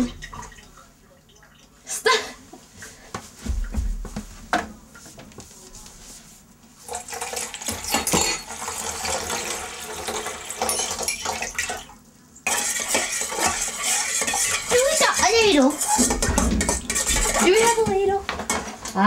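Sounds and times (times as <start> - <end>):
spoon scraping metal bowl: 12.5 - 17.8.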